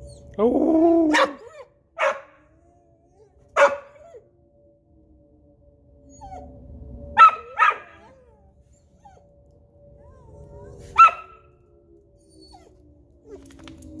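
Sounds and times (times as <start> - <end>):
tornado siren tone: 0.0 - 14.0
dog whining: 2.5 - 4.2, 6.1 - 6.6, 7.3 - 9.3, 10.0 - 11.5, 12.2 - 13.8.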